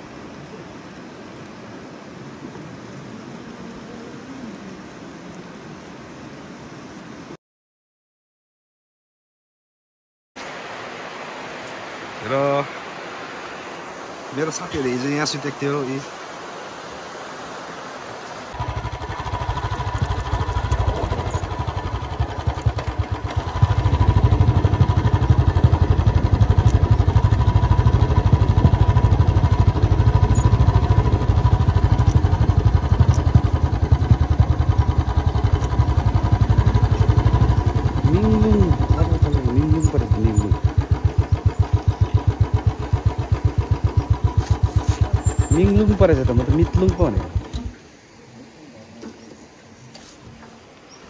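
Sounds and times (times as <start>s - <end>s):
vehicle engine starting and running: 18.5s - 48.0s.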